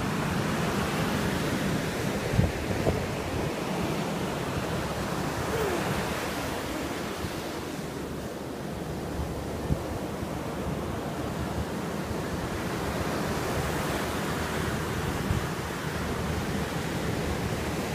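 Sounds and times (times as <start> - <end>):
ocean surf breaking: 0.0 - 17.9
wind on microphone: 1.4 - 11.7.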